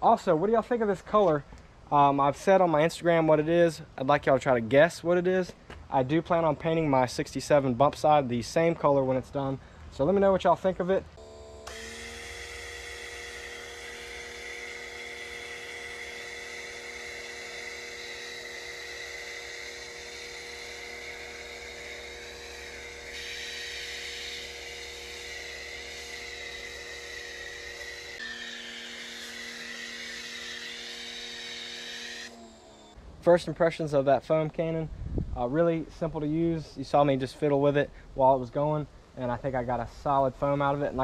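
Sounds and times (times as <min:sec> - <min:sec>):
pressure washer whining: 0:11.2 - 0:33.0.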